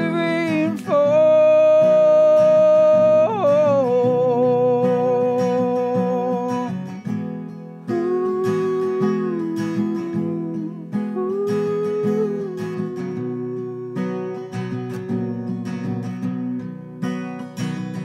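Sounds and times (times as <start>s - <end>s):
man singing long held notes: 0.0s - 6.8s, 7.9s - 14.4s
strummed acoustic guitar: 0.0s - 18.0s.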